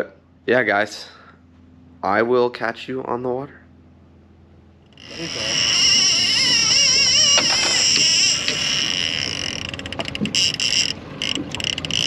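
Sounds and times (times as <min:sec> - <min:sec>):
fishing reel drag screaming: 0:04.9 - 0:12.0.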